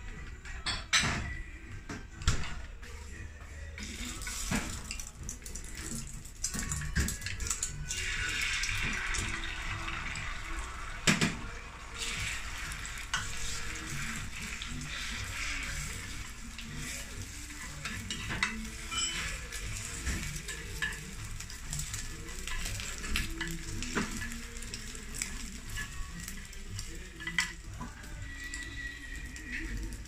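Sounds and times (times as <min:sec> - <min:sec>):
egg sizzling in a pan: 0:03.8 - 0:30.0
chopsticks scraping a pan: 0:12.0 - 0:30.0.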